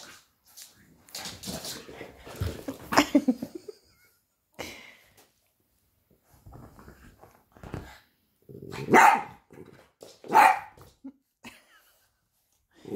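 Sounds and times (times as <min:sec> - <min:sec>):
puppy barking: 0:08.8 - 0:09.4, 0:10.3 - 0:10.8.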